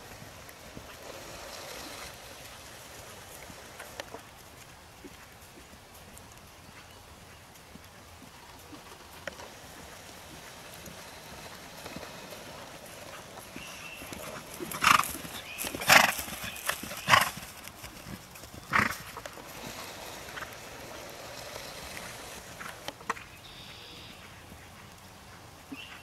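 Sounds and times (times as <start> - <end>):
horse snorting: 0.0 - 4.3, 8.6 - 23.1.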